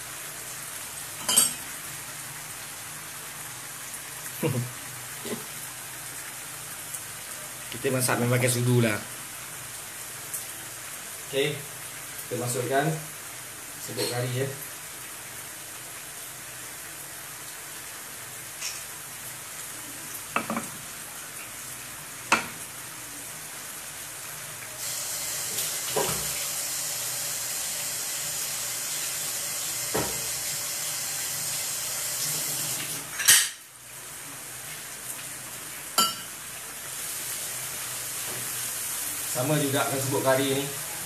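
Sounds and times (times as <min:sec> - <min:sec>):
curry sauce sizzling in a pan: 0:00.0 - 0:41.0
kitchenware clinking: 0:01.2 - 0:01.6, 0:20.4 - 0:20.7, 0:36.0 - 0:36.3.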